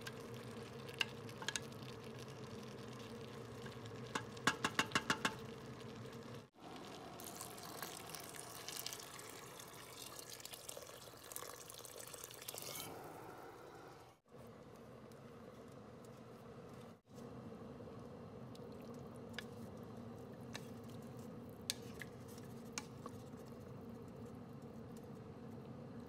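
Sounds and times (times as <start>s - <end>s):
water pouring into a pot: 0.0s - 13.3s
spoon tapping a pot: 4.1s - 5.4s.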